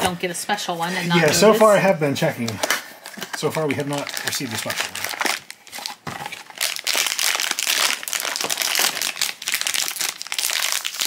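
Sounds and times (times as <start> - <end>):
foil pouch crinkling: 2.4 - 11.0.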